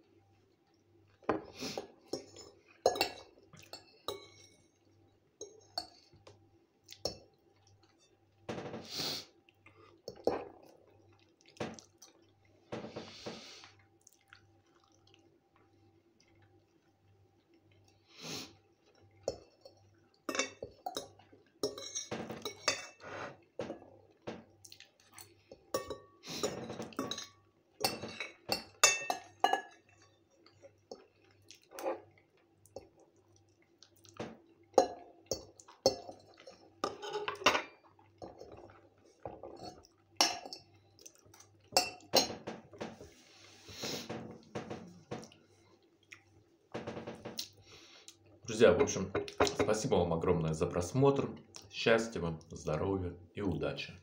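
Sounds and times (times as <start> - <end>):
fork scraping on ceramic plate: 22.6 - 23.4.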